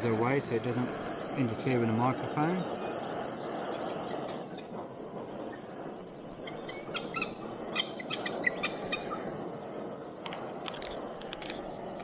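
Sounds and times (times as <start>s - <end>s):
gas stove burner hissing: 0.0s - 12.0s.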